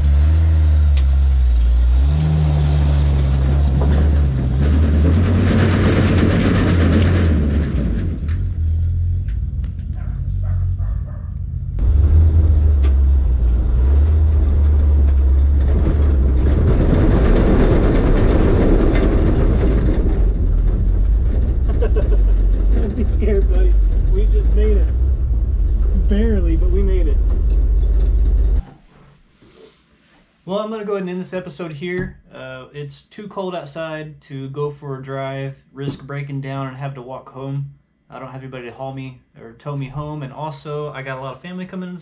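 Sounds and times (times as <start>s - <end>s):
truck engine running: 0.0s - 28.6s.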